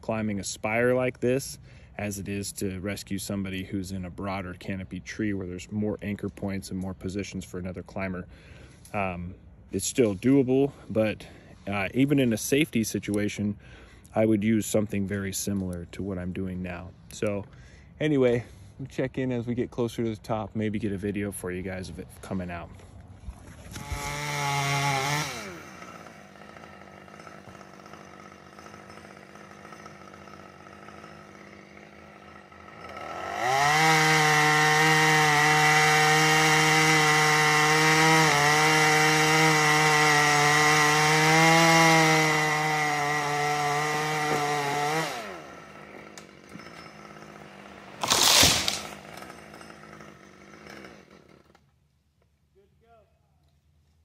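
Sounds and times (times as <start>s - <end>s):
chainsaw revving and idling: 23.6s - 51.7s.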